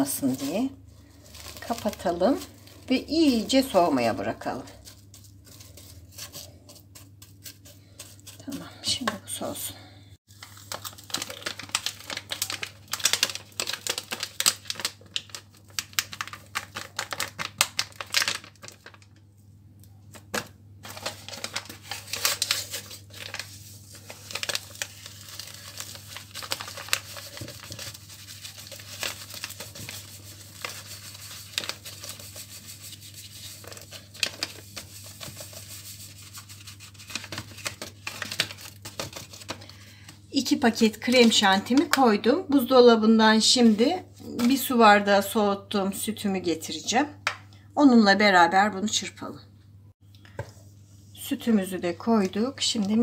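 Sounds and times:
packets crinkling and tearing: 0:00.3 - 0:02.9, 0:10.3 - 0:19.2, 0:20.2 - 0:39.8.

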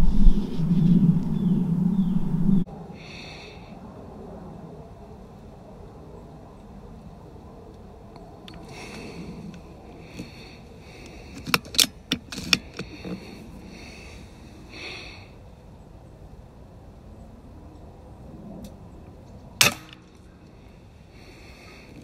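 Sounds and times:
air rifle shot: 0:19.6 - 0:20.0.

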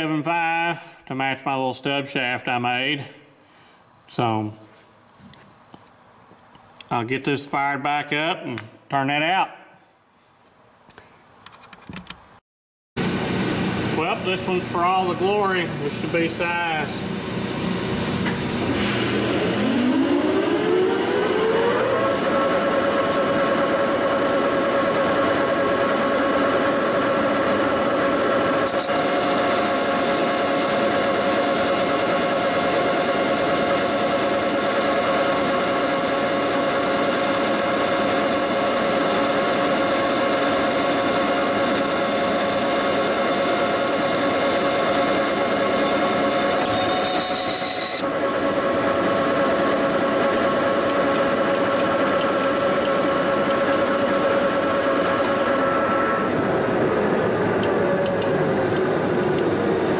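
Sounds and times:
lathe running: 0:13.0 - 0:59.9.

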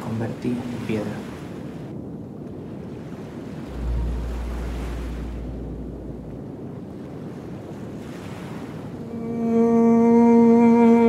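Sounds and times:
sea waves washing on beach: 0:00.0 - 0:09.7
wind: 0:00.0 - 0:11.0
deep low rumble: 0:03.7 - 0:07.7.

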